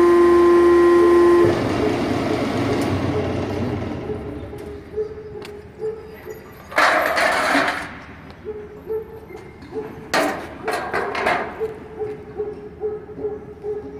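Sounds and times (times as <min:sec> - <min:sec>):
sheet metal rattling and scraping: 0:06.4 - 0:08.1, 0:10.0 - 0:11.7
clattering knocks of metal sheet: 0:06.8 - 0:08.0, 0:10.1 - 0:11.6.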